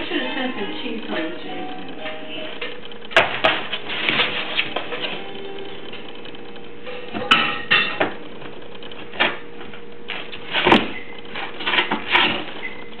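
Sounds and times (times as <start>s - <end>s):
puppy scraping cardboard box: 3.4s - 4.9s, 10.3s - 12.7s.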